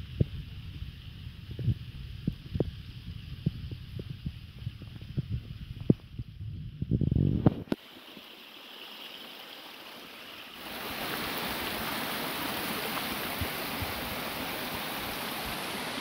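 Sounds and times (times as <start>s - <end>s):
stream rushing over rocks: 7.5s - 16.0s.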